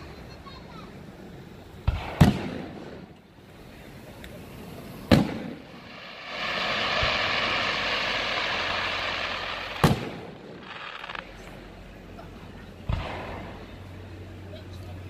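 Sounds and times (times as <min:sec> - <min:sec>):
firework stars fizzling: 0:00.8 - 0:12.2
firework bangs: 0:01.8 - 0:11.9, 0:12.8 - 0:14.0.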